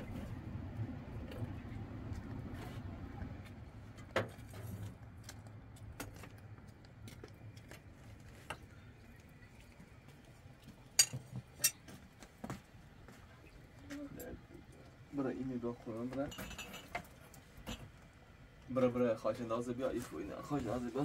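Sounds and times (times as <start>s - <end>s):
tableware clinking: 11.0s - 11.8s, 16.3s - 17.9s.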